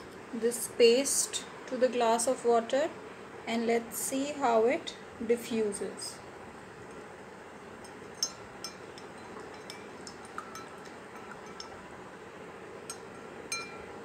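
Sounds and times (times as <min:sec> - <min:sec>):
spoon clinking against glass: 0:07.8 - 0:11.8, 0:12.9 - 0:14.0.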